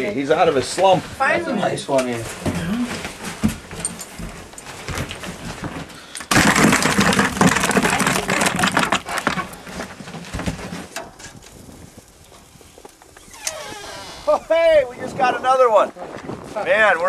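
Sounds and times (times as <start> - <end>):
fish thrashing in a bucket: 4.4 - 10.6.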